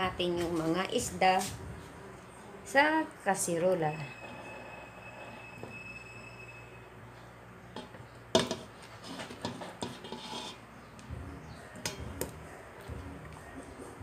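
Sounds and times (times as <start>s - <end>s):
rubbing against metal pot: 8.7s - 10.8s.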